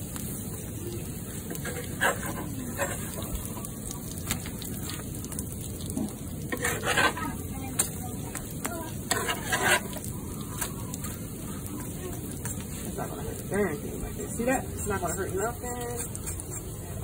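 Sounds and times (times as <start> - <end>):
pancakes sizzling on griddle: 0.0 - 17.0
metal spatula scraping griddle: 1.5 - 3.4, 6.5 - 7.9, 8.9 - 10.7, 14.4 - 16.8.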